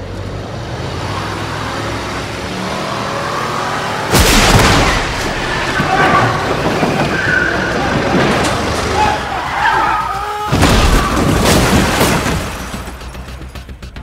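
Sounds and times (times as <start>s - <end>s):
heavy crash: 4.1s - 9.3s
tyres squealing: 5.3s - 11.2s
glass shattering: 10.5s - 13.0s.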